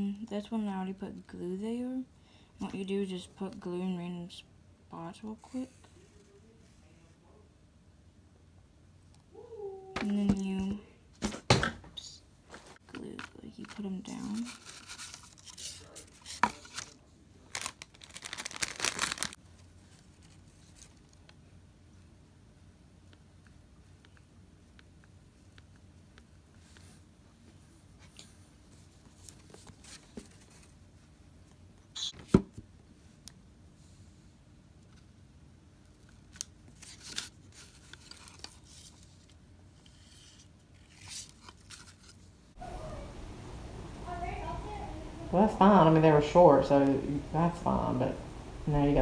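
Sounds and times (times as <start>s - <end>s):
paper rustling: 12.5s - 21.2s, 28.0s - 30.8s, 36.0s - 42.3s.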